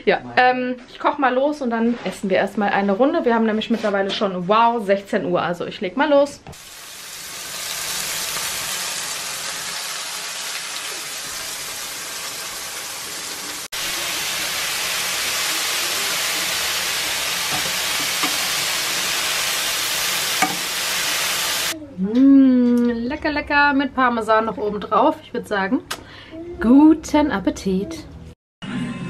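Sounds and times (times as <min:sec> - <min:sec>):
chicken sizzling in a frying pan: 0:06.6 - 0:21.8
spatula tapping a pan: 0:20.4 - 0:20.7.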